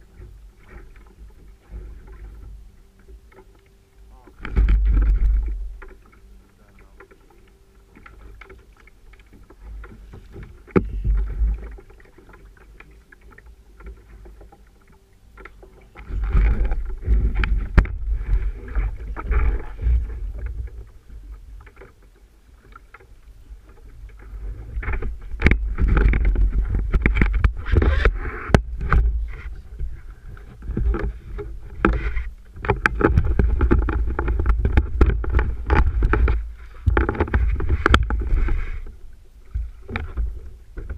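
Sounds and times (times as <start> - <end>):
water splashing against a paddle ski: 0.0 - 40.9
wind rumbling on microphone: 4.1 - 7.3, 8.0 - 12.6, 15.5 - 21.8, 22.6 - 40.9.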